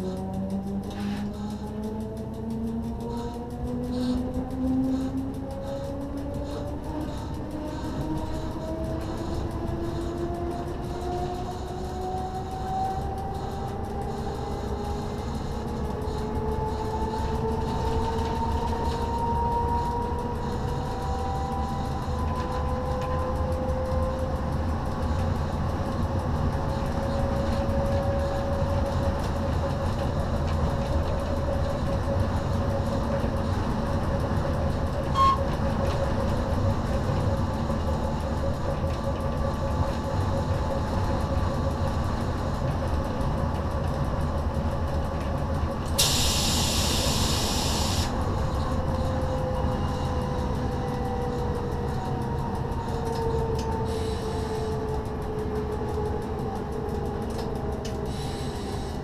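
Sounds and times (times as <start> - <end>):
wheels rumbling on rail: 0.0 - 59.0
hiss: 46.0 - 48.2, 53.9 - 54.7, 58.1 - 59.0.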